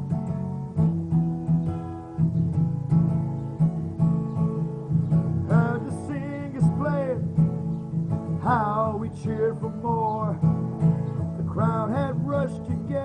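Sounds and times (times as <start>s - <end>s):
acoustic guitar strumming: 0.0s - 13.0s
person singing: 5.4s - 7.4s, 8.4s - 10.5s, 11.2s - 13.0s.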